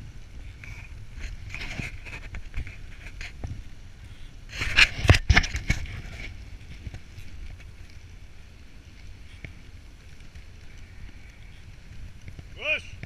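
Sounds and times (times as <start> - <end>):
sled runners hissing over snow: 0.0 - 13.0
knocks and scraping: 0.6 - 3.6, 4.5 - 7.7.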